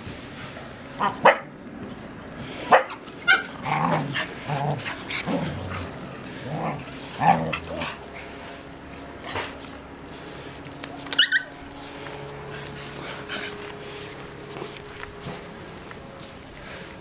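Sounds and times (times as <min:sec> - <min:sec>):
dogs barking and yipping: 0:01.0 - 0:01.6, 0:02.4 - 0:09.2, 0:10.8 - 0:12.0
dogs drawn-out low vocalizing: 0:02.4 - 0:08.5.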